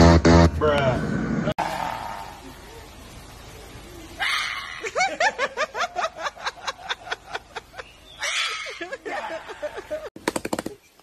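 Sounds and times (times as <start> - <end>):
high cackling laughter: 4.5 - 10.1.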